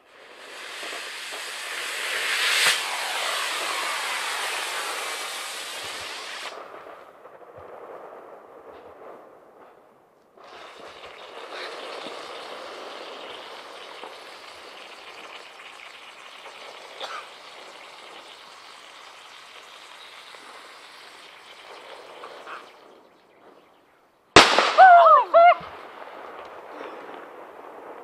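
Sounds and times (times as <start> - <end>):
firework rocket hissing: 0.0 - 7.1, 10.4 - 23.0
faint crackles: 0.0 - 24.0, 24.8 - 28.0.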